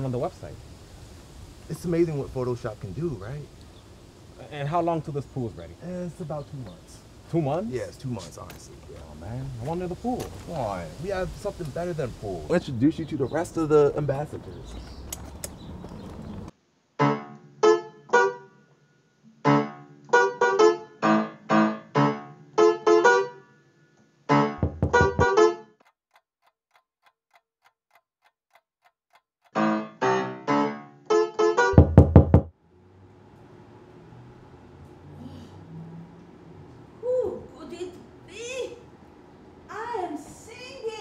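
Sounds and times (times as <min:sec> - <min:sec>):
electronic keyboard notes and chords: 0:19.4 - 0:23.5, 0:29.5 - 0:31.8
heavy low thumps: 0:24.6 - 0:25.2, 0:31.8 - 0:32.5.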